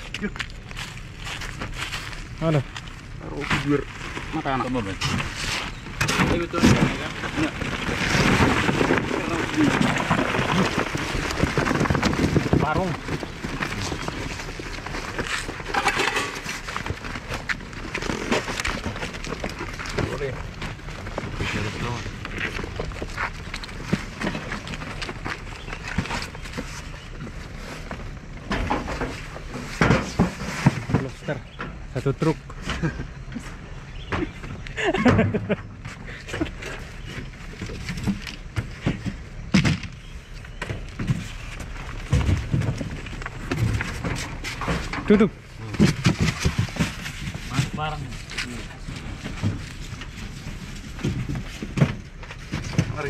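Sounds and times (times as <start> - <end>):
footsteps in truck bed: 0.0 - 3.8
crayfish scratching in styrofoam box: 3.6 - 28.2, 40.8 - 53.0.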